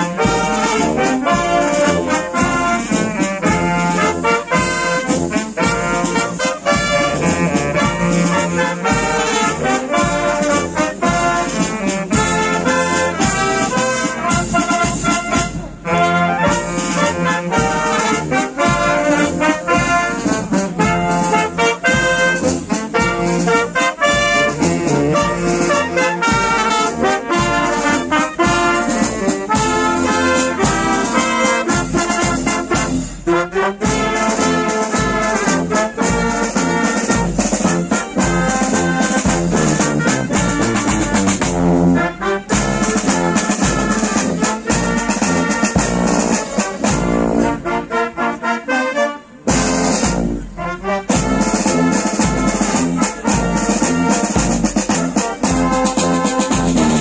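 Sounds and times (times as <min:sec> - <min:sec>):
wind band playing: 0:00.0 - 0:57.0.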